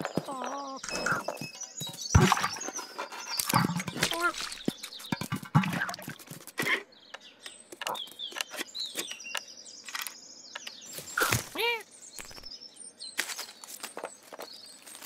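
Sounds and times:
squeaky chirps and chattering: 0.0 - 1.4.

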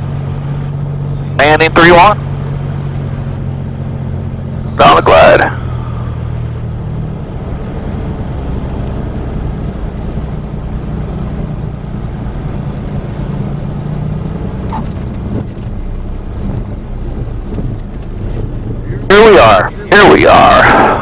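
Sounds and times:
airplane engine and propeller: 0.0 - 21.0.

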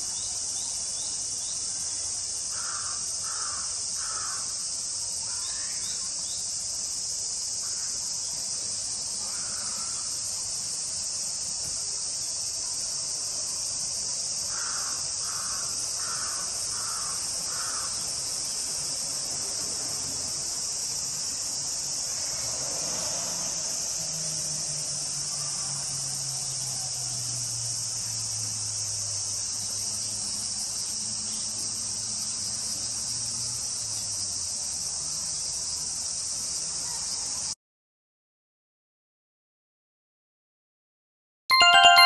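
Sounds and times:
high-pitched insect chorus: 0.0 - 37.6
crow cawing: 2.5 - 4.5, 9.3 - 10.0, 14.5 - 18.0.

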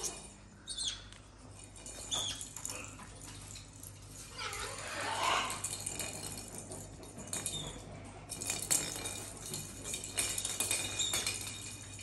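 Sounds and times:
light metallic jingling: 0.0 - 4.8.

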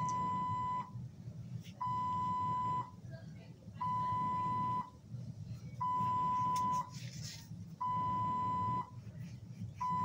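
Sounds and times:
medical alarm beeping: 0.0 - 1.0, 1.8 - 3.0, 3.8 - 5.0, 5.8 - 6.9, 7.8 - 9.0, 9.8 - 10.0.

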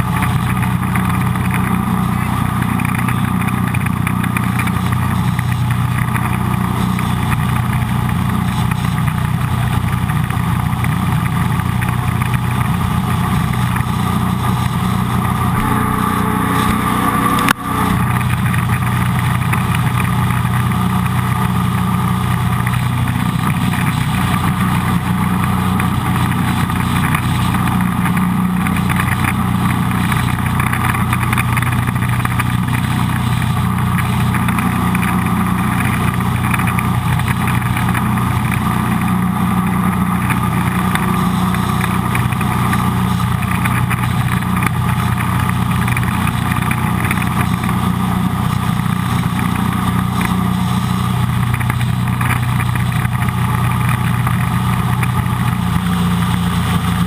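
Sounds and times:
boat engine running: 0.0 - 57.0.

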